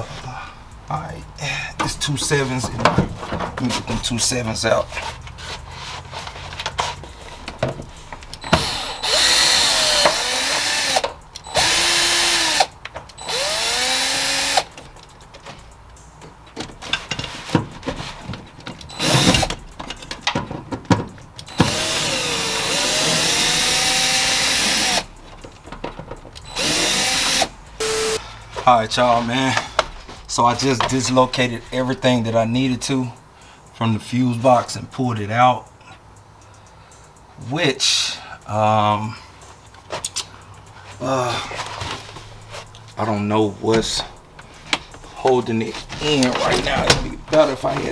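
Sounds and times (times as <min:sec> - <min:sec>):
power drill running: 0:08.5 - 0:14.7, 0:18.9 - 0:19.5, 0:21.5 - 0:25.1, 0:26.4 - 0:28.2.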